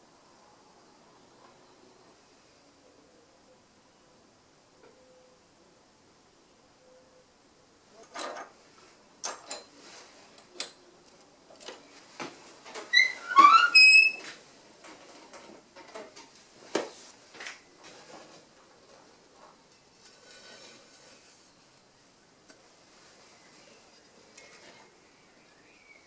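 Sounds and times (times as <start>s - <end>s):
rising squeak: 12.9s - 14.3s.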